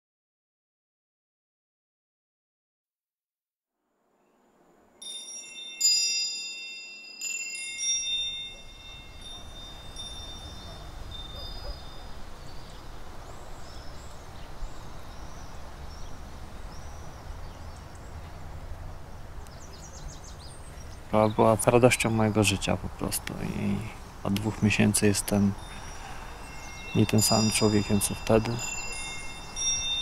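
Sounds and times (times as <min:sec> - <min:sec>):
wind chimes ringing: 0:05.0 - 0:12.8, 0:23.4 - 0:30.0
faint bird chirps: 0:08.6 - 0:18.4.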